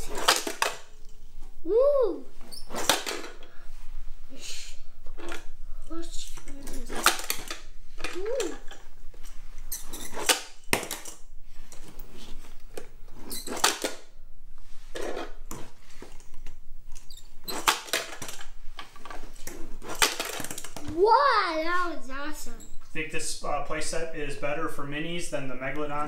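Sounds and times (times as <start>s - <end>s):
toy trucks clicking and rattling: 0.0s - 1.1s, 17.0s - 20.8s.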